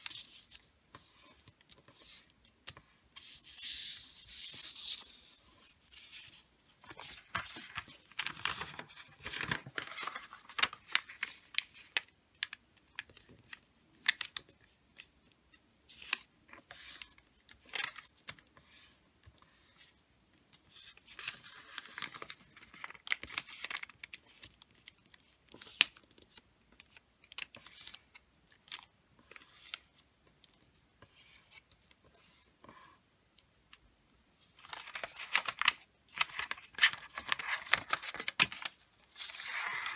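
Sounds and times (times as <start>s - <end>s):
wrapping paper rustling: 3.2s - 12.1s, 34.6s - 39.9s.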